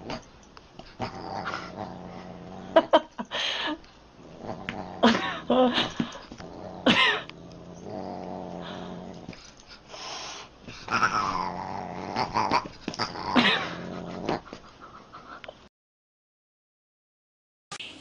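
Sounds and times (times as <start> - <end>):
animals growling: 0.9 - 3.0, 4.2 - 9.4, 10.8 - 14.6.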